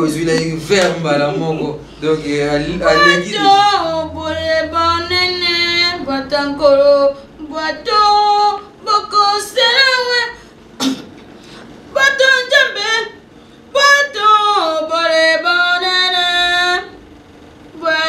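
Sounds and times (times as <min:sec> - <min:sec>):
woman singing long notes: 0:02.6 - 0:10.4.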